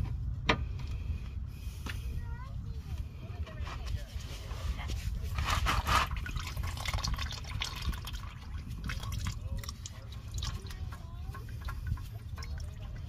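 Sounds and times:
oil dripping and trickling: 5.1s - 13.0s.

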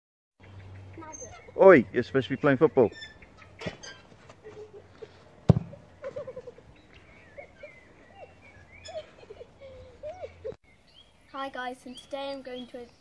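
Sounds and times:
birds chirping: 0.4s - 13.0s
football kick thud: 5.4s - 5.8s.

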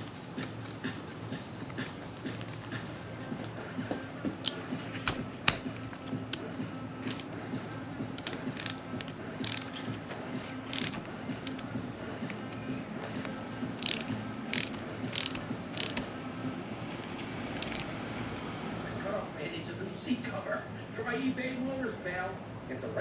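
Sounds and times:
hand ratchet clicking: 4.4s - 7.3s, 8.2s - 10.0s, 10.7s - 11.7s, 13.8s - 16.1s, 17.5s - 17.9s.

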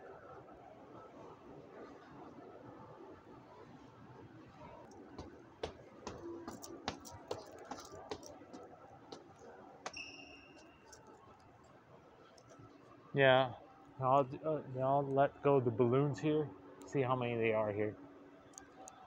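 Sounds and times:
footsteps on stone stairs: 5.0s - 9.3s.

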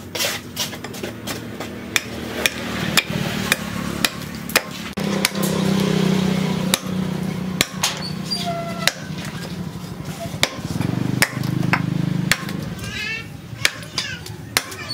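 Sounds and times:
knife chopping wood: 0.7s - 5.6s, 6.7s - 7.0s, 7.6s - 8.0s, 8.8s - 9.1s, 10.4s - 12.7s, 13.6s - 14.9s.

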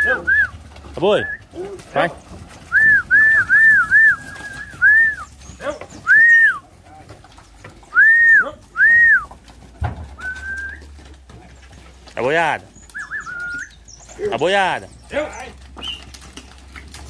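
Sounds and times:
person whistling: 2.7s - 5.2s, 6.1s - 6.6s, 7.9s - 9.3s, 10.2s - 10.8s.

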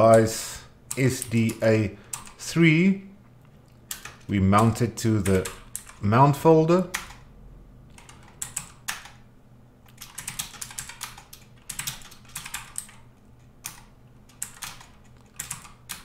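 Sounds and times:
typing on a keyboard: 0.9s - 2.4s, 3.9s - 4.3s, 5.2s - 6.0s, 6.9s - 7.2s, 7.9s - 9.2s, 9.9s - 16.0s.

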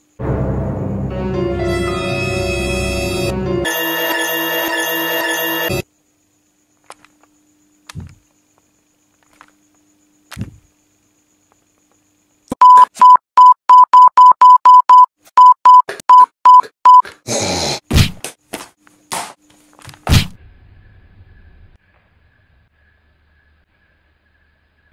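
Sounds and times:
music: 0.2s - 5.8s
short high electronic beeps: 12.6s - 17.0s.

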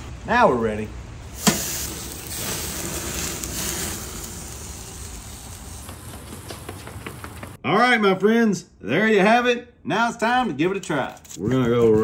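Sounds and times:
rain hissing: 1.0s - 6.7s
steak sizzling on a grill: 1.4s - 5.9s.

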